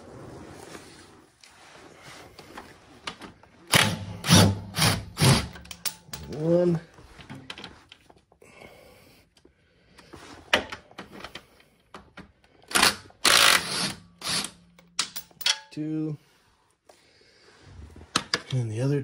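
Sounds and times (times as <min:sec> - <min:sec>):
cordless power tool whirring: 0:12.7 - 0:14.5.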